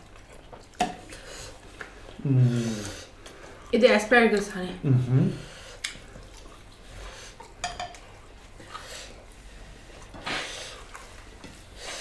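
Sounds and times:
spoon clinking on ceramic plates: 0:07.6 - 0:08.0.

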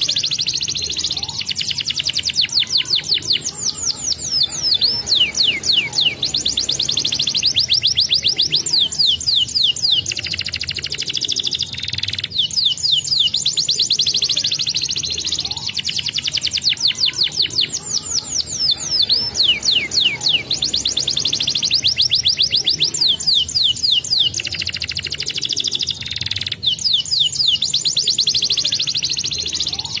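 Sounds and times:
canary singing: 0:00.0 - 0:30.0.

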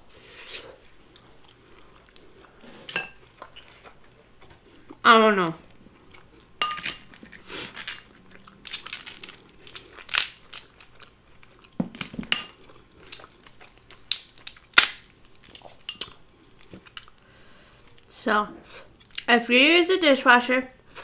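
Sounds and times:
crab shell cracking and snapping: 0:08.6 - 0:11.8, 0:13.0 - 0:16.2.

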